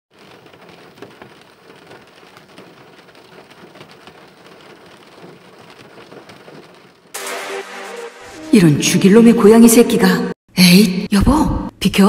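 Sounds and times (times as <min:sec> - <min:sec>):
rain drops ticking: 0:00.1 - 0:07.2.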